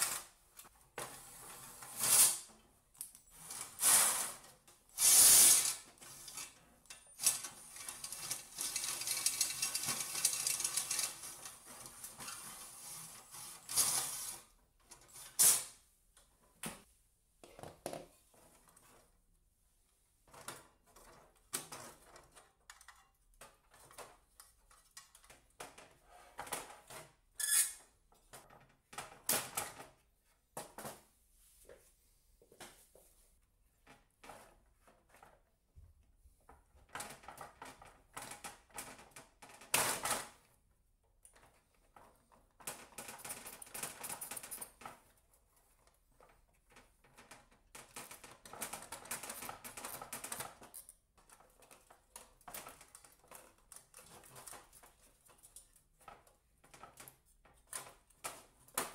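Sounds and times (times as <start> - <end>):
clicks and knocks of metal parts: 6.0 - 11.9, 20.3 - 27.1.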